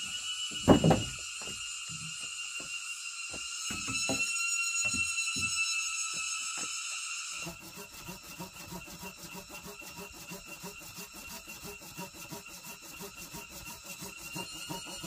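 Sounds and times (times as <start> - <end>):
hand saw cutting wood: 7.4 - 15.0.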